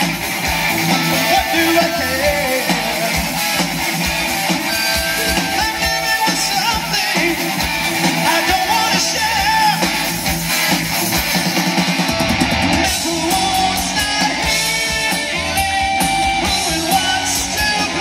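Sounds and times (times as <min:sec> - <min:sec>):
distorted electric guitars: 0:00.0 - 0:18.0
drum kit: 0:00.0 - 0:18.0
person singing: 0:00.9 - 0:03.5, 0:04.6 - 0:09.9, 0:12.8 - 0:14.7, 0:16.4 - 0:18.0.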